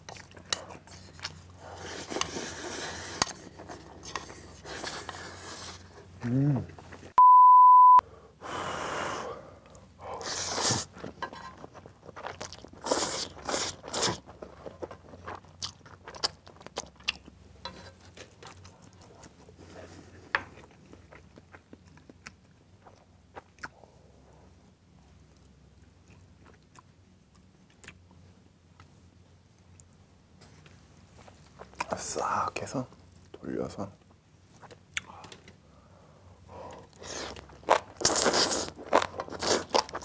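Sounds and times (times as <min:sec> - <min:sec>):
wet chewing: 0:36.8 - 0:40.0.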